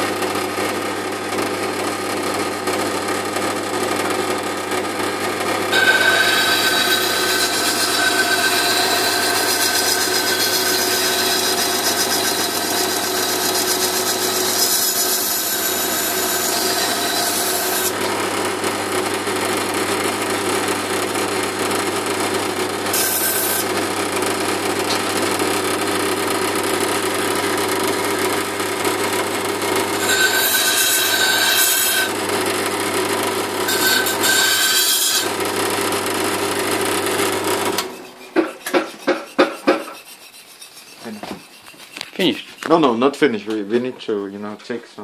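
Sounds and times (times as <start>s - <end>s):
grinding wheel motor hum: 0.1s - 38.0s
hissing grind of steel on stone: 38.3s - 42.8s.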